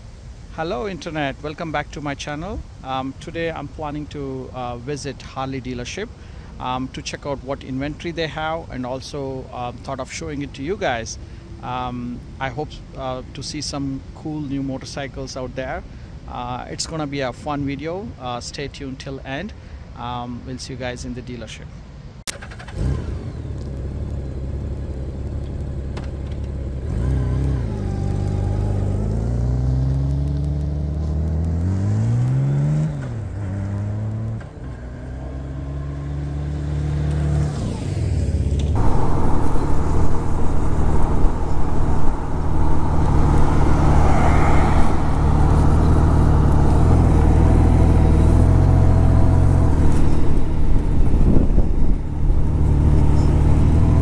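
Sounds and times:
wind and road noise: 0.0s - 54.0s
vehicle engine accelerating: 22.6s - 54.0s.

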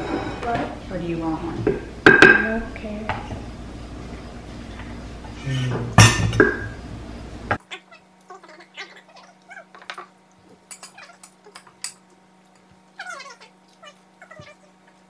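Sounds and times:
steady low hum: 0.0s - 15.0s
cutlery clinking against plates: 10.6s - 12.7s
faint high-pitched cries: 13.0s - 14.8s.

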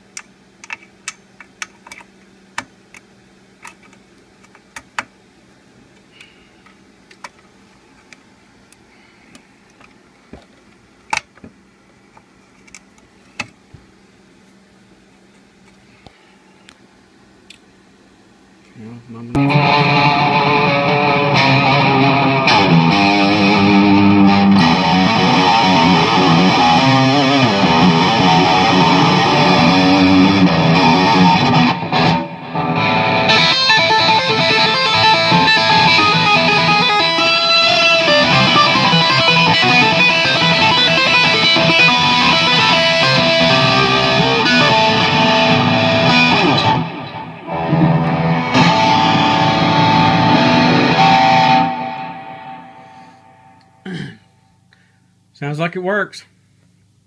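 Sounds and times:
electric guitar through amp: 19.3s - 54.2s.

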